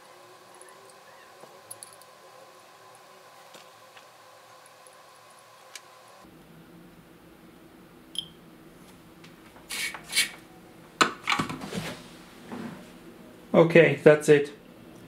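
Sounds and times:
faint steady hum: 0.0s - 15.0s
short scrapes: 9.7s - 10.4s.

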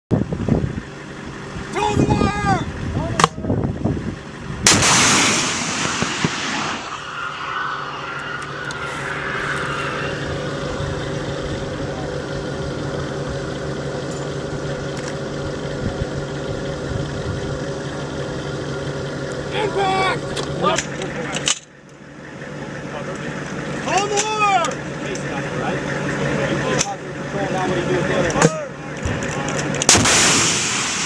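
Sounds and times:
vehicle engine idling: 0.1s - 31.0s
missile launch blast: 4.6s - 11.3s, 29.9s - 31.0s
missile rushing noise: 4.6s - 12.0s, 29.9s - 31.0s
faint wavering whine: 5.7s - 17.2s.

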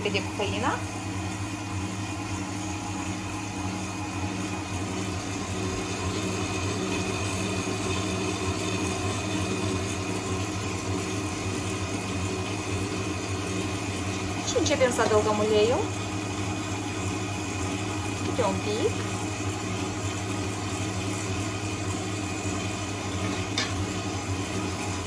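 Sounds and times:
electric mixer kneading dough: 0.0s - 25.0s.

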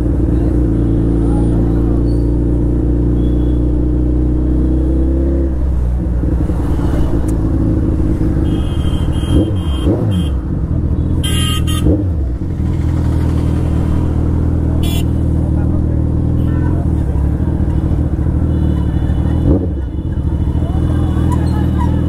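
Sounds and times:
passing traffic: 0.0s - 22.0s
vehicle horns honking: 3.1s - 3.8s, 8.3s - 12.1s, 14.8s - 15.2s, 16.3s - 22.0s
motorcycle engine running: 5.0s - 22.0s.

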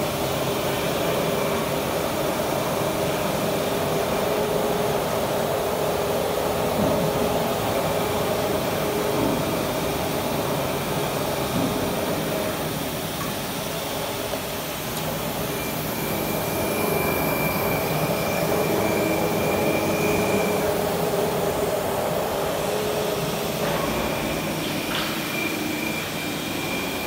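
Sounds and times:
thin high whine: 15.3s - 27.0s.

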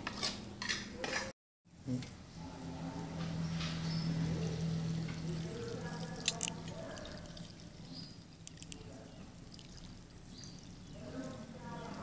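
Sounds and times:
liquid splashing pour: 4.4s - 11.6s.

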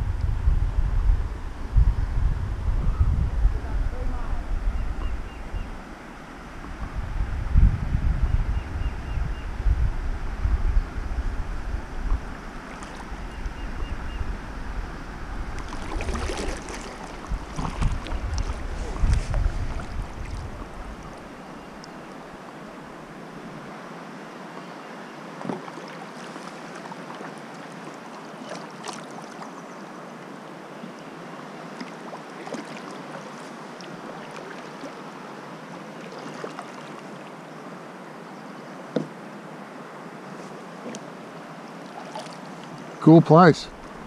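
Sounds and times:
wind buffeting microphone: 0.0s - 21.4s
river water hissing: 5.2s - 6.8s, 10.1s - 44.0s
small splashes and hull knocks: 12.0s - 13.1s, 15.6s - 21.2s, 25.4s - 29.5s, 31.8s - 35.0s, 36.0s - 37.3s, 41.8s - 42.9s.

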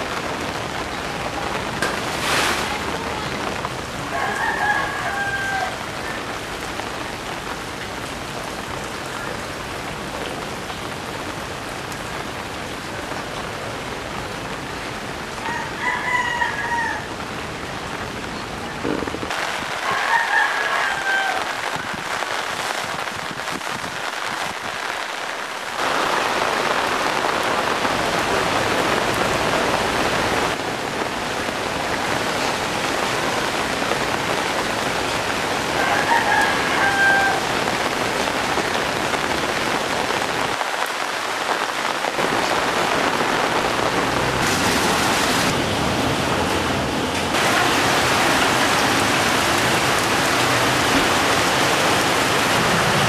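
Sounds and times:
heavy rain hissing: 0.0s - 15.8s, 17.1s - 53.0s
rooster crowing: 4.1s - 6.2s, 15.4s - 17.2s, 19.8s - 21.7s, 35.8s - 37.6s.

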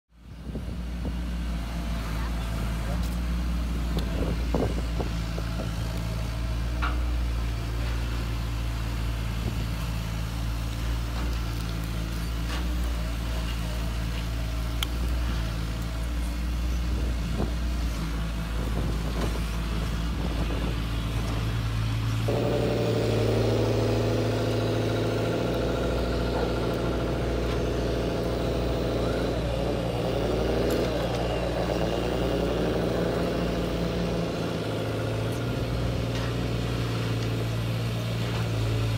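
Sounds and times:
low motor hum: 0.2s - 38.9s
high motor whine: 16.2s - 37.9s.

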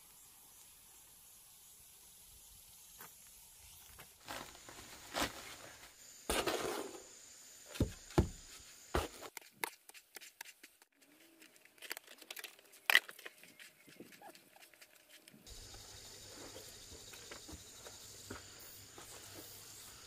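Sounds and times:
paper sack rustling: 4.2s - 7.0s
shovel scraping and thudding tub: 4.2s - 7.1s.

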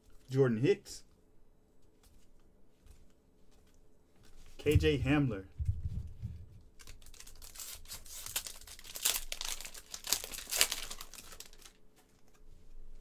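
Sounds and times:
foil wrapper crinkling: 6.7s - 12.4s.

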